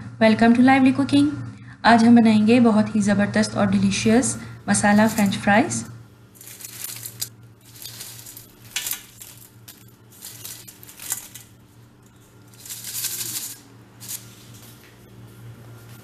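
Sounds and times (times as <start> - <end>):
low steady hum: 0.0 - 16.0
fries rattling in metal colander: 4.7 - 5.6, 6.3 - 14.6.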